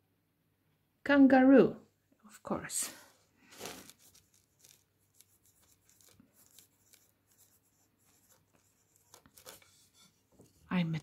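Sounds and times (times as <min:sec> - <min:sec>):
paper rustle: 0:03.4 - 0:10.6
pencil scratching on paper: 0:03.6 - 0:11.0.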